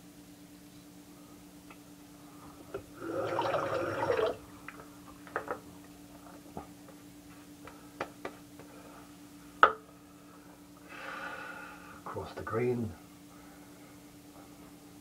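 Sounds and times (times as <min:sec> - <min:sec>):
faint steady hum: 0:00.0 - 0:15.0
tap water running: 0:02.7 - 0:04.8.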